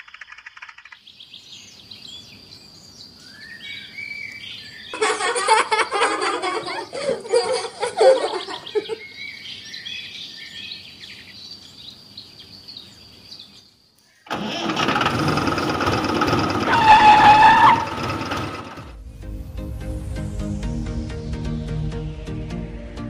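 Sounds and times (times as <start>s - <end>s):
birds chirping: 0.0s - 14.3s
engine starting and running: 14.3s - 19.0s
music: 19.0s - 23.0s.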